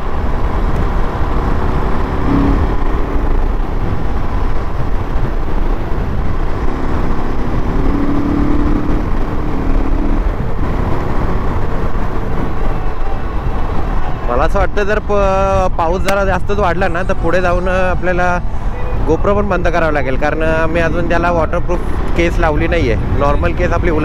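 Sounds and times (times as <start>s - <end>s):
motorcycle engine: 0.0s - 14.2s
wind rushing over microphone: 0.0s - 24.0s.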